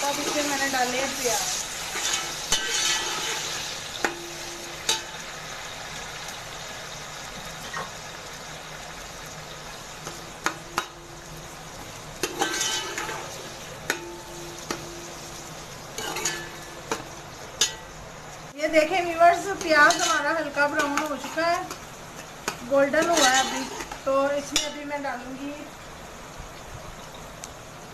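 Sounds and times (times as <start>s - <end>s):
onions sizzling in oil: 0.0s - 27.9s
spatula scraping metal pot: 1.5s - 3.6s, 12.2s - 13.6s, 19.4s - 21.8s, 22.9s - 24.0s.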